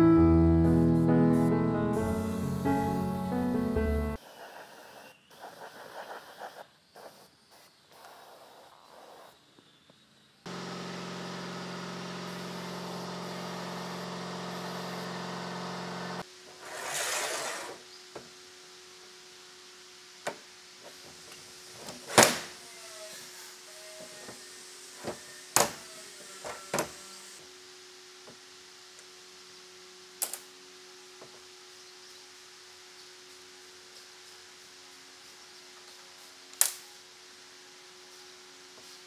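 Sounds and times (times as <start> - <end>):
machine motor humming: 10.5 - 16.3.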